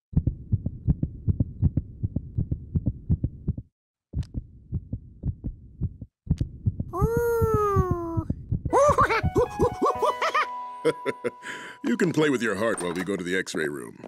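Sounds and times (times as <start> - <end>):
heartbeat through stethoscope: 0.1 - 9.6.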